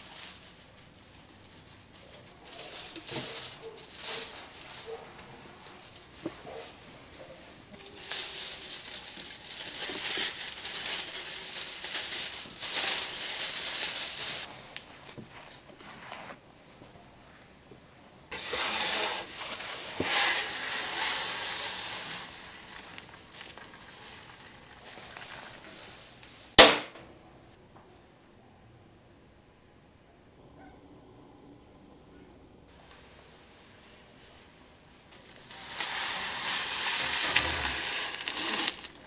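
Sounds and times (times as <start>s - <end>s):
aluminium foil crinkling: 0.0s - 14.6s, 18.3s - 26.0s, 35.1s - 39.0s.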